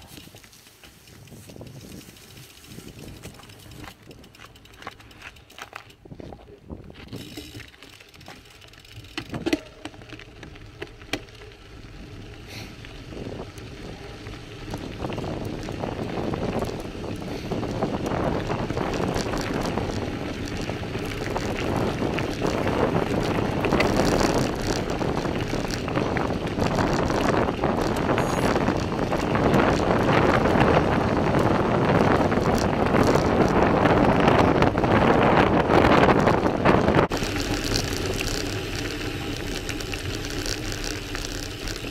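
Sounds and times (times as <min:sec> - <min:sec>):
tyres crunching on gravel: 0:00.0 - 0:41.9
wind on microphone: 0:01.1 - 0:04.4, 0:12.5 - 0:41.9.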